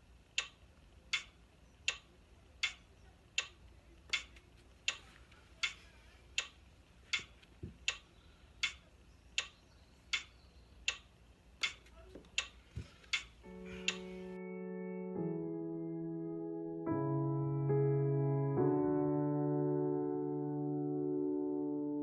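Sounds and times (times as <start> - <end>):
metronome clicking: 0.4 - 2.8, 3.4 - 5.0, 6.4 - 14.1.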